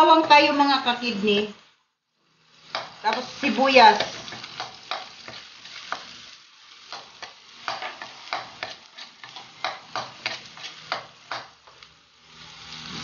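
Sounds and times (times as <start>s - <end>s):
garlic and onion sizzling in oil: 0.0s - 13.0s
metal spatula scraping a wok: 6.9s - 11.4s.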